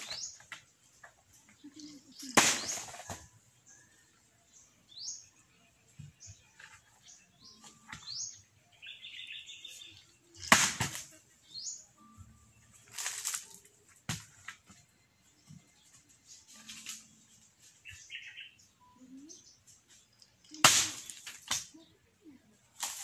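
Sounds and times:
birds chirping: 0.0 - 22.8
blade striking coconut: 2.3 - 3.2, 10.4 - 11.1, 20.5 - 21.7.

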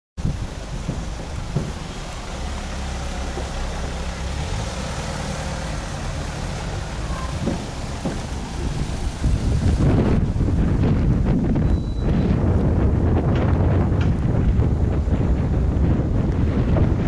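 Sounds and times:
car engine driving past: 0.9 - 11.0.

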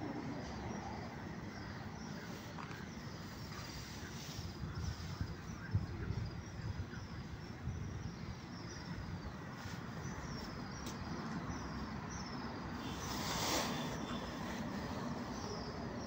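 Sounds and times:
distant traffic: 0.0 - 16.0
small bird chirping: 0.9 - 16.0
wind rumble: 4.0 - 10.3.

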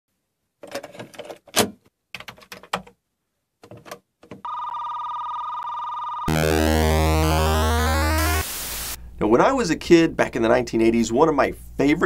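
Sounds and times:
steady electronic tone: 6.3 - 9.0.

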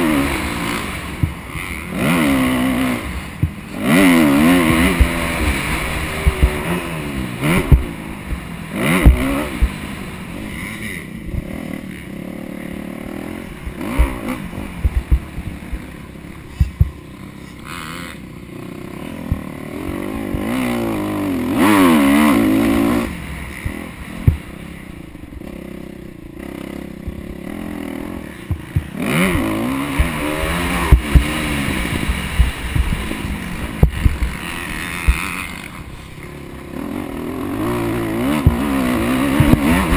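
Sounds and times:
dirt bike engine revving: 0.0 - 39.9
sharp knocks and thumps: 7.6 - 8.4, 16.6 - 17.0, 23.6 - 24.5, 28.4 - 30.2, 38.3 - 39.9.

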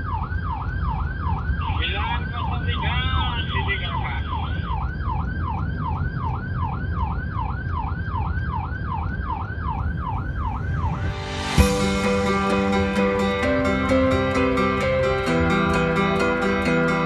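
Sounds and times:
police siren yelping: 0.0 - 11.8, 13.0 - 17.0
car road and engine rumble: 0.0 - 17.0
acoustic guitar music: 11.2 - 17.0.

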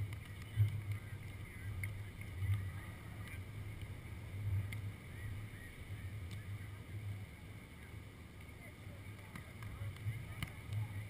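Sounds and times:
faint small ticks: 0.0 - 4.0, 4.6 - 4.9.

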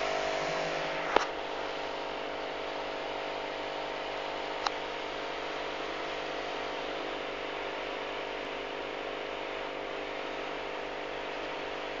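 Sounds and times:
aquarium pump humming: 0.0 - 12.0.

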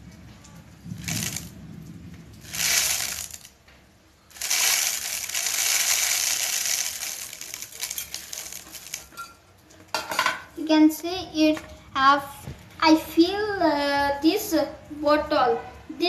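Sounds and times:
rice grains pouring into bottle: 1.0 - 1.5, 2.4 - 3.5, 4.3 - 9.1
scattered grains dropping: 1.0 - 1.5, 2.4 - 3.5, 4.3 - 9.1.

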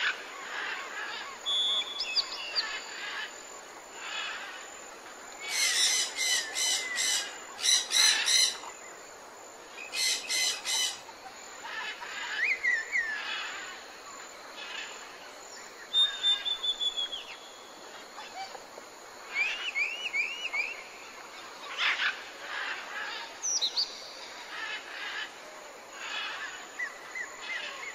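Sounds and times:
birds calling: 5.4 - 8.9.

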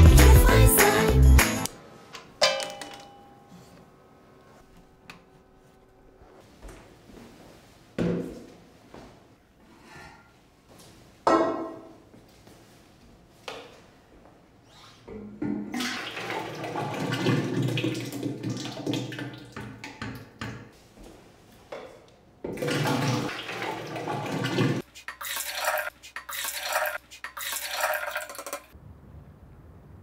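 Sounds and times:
liquid pouring into metal can: 22.6 - 28.7.

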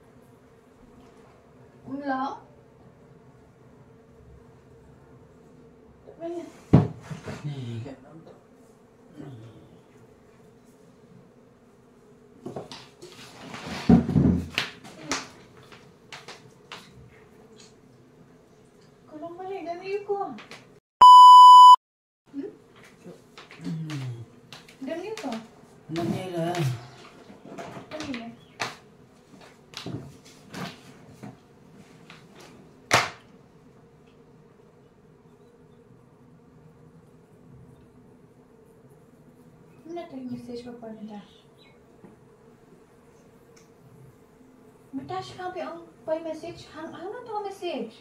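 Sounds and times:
plastic chair scraping on tiles: 12.5 - 15.0, 26.9 - 28.1
sharp smack: 32.9 - 33.2.

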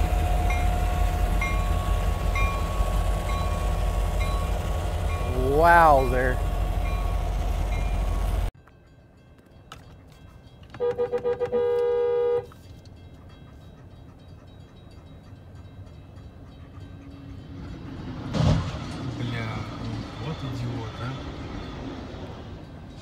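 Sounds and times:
car horn toots and blast: 10.8 - 12.5
train hitting car crash: 18.0 - 22.6.

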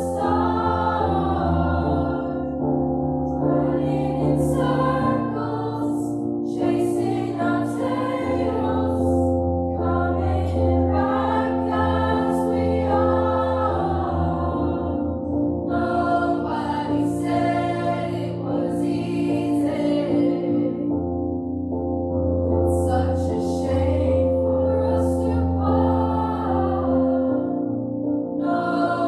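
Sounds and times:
choir singing: 0.0 - 20.9, 22.7 - 29.0.

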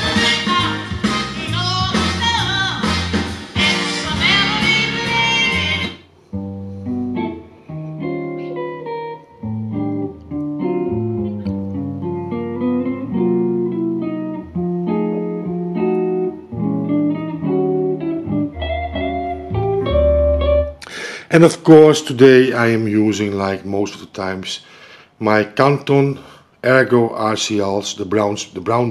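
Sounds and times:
plucked guitar piece over loudspeakers: 4.1 - 20.9.

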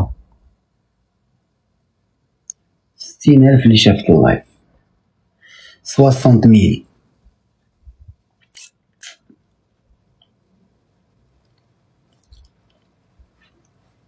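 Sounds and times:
faint clicks and taps: 11.1 - 14.0.

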